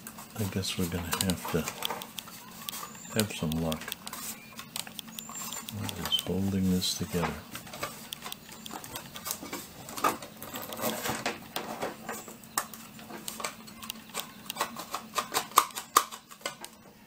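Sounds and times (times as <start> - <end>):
metal chassis clicks and scrapes: 7.0 - 12.2.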